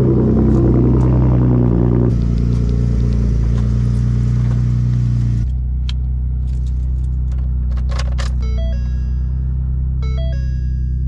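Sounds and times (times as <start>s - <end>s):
truck engine idling: 0.0s - 7.7s.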